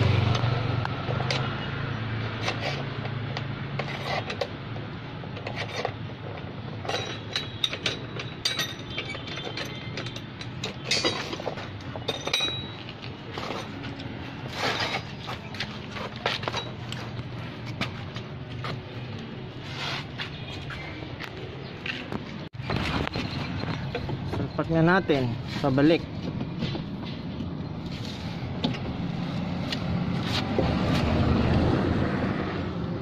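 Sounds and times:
hand tool clicking and scraping metal: 2.2s - 18.8s
ringing metal clinks: 6.9s - 11.4s, 12.0s - 12.9s.

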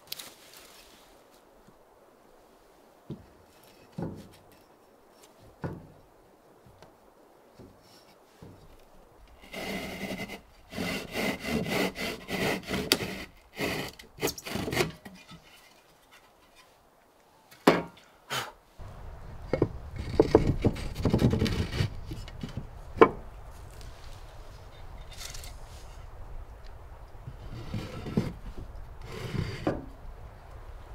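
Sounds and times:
board rubbing and scraping: 9.4s - 16.7s, 19.5s - 22.7s, 27.3s - 29.9s
handsaw cutting board: 9.5s - 14.9s.

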